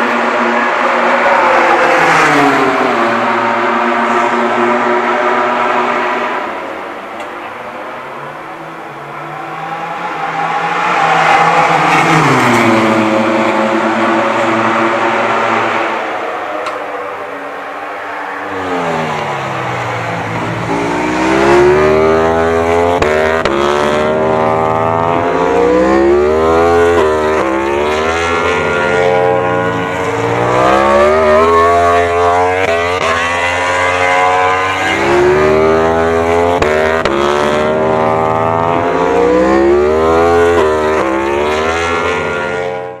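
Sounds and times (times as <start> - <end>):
motorcycle engine revving: 8.9 - 43.0.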